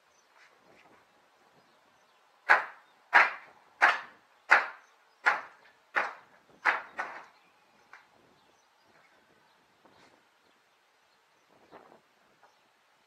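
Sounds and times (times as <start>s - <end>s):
hammer blows on wooden planks: 2.5s - 8.1s.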